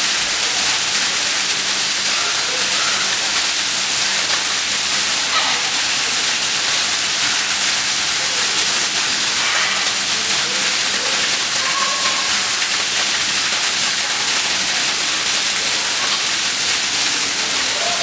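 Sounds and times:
rushing water hiss: 0:00.0 - 0:18.0.

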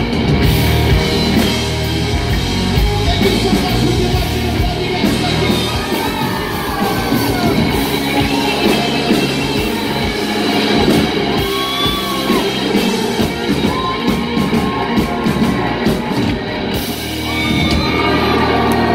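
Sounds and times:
bass guitar: 0:00.0 - 0:18.9
drums: 0:00.0 - 0:18.9
electric guitars: 0:00.0 - 0:18.9
shouted vocals: 0:03.5 - 0:10.0, 0:11.1 - 0:16.4, 0:17.2 - 0:18.9.

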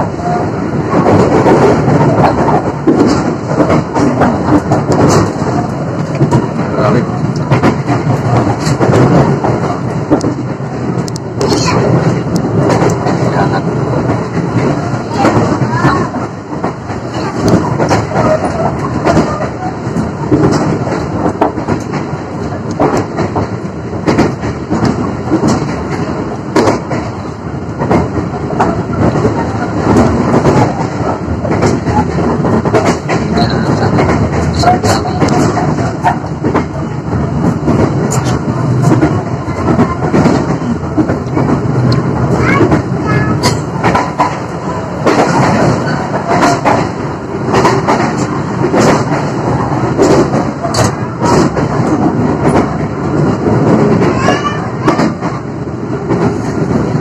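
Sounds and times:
train knocks and clicks: 0:00.0 - 0:57.0
train rumbling inside carriage: 0:00.0 - 0:57.0.

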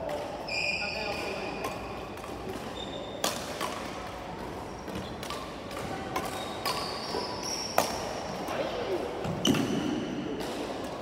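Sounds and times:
rackets hitting shuttlecock: 0:01.0 - 0:08.6, 0:09.2 - 0:11.0.

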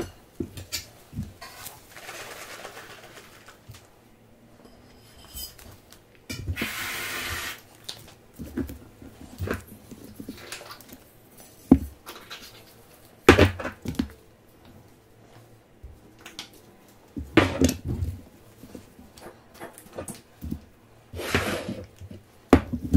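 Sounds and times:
utensils clattering on plate: 0:04.6 - 0:05.8
aerosol can spraying: 0:06.6 - 0:07.6.

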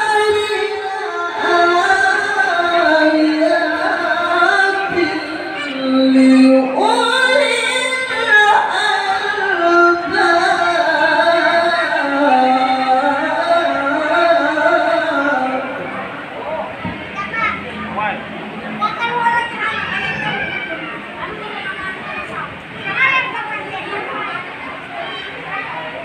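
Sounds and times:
man singing melismatic style: 0:00.0 - 0:16.0.

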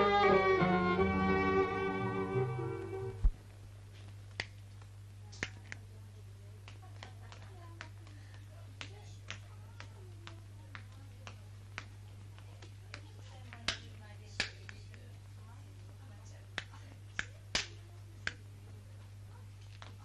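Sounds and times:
orchestral string music: 0:00.0 - 0:03.3
low film soundtrack hum: 0:00.0 - 0:20.0.

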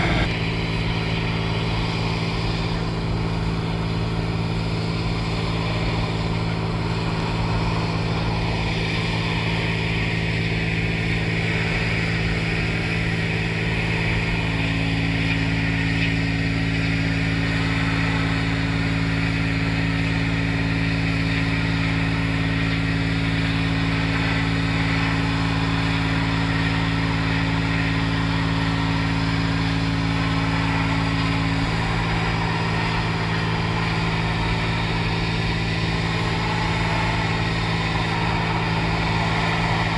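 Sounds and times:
higher hum: 0:00.0 - 0:09.5, 0:30.0 - 0:39.9
pressure washer drone: 0:00.0 - 0:39.9.

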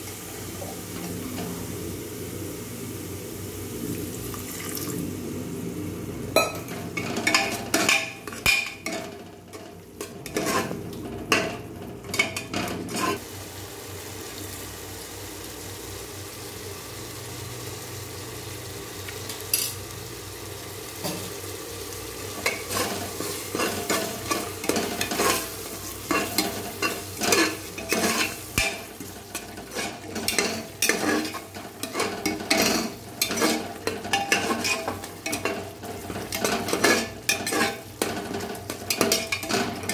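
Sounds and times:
food sizzling: 0:00.0 - 0:39.9
ladle scraping a pot: 0:07.0 - 0:13.2, 0:22.4 - 0:39.9.

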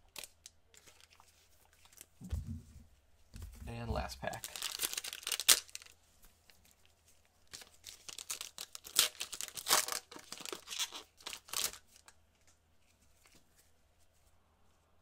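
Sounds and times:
foil crinkling and tearing: 0:00.1 - 0:02.1, 0:04.2 - 0:06.0, 0:07.4 - 0:12.1
foil wrapper ripping: 0:04.3 - 0:06.0, 0:07.5 - 0:12.0.

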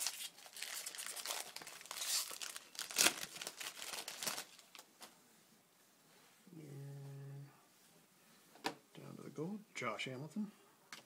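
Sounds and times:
foil wrapper crinkling: 0:00.0 - 0:04.9.

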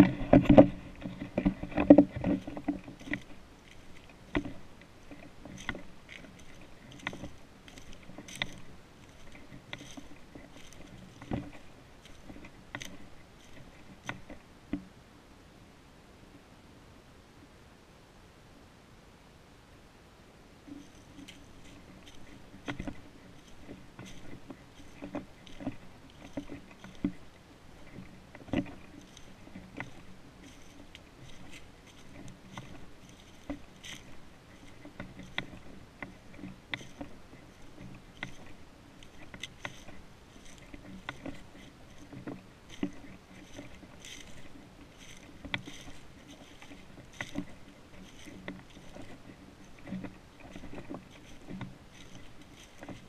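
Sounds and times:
footsteps through dry leaves: 0:05.5 - 0:13.9, 0:28.8 - 0:35.9, 0:37.1 - 0:53.0.

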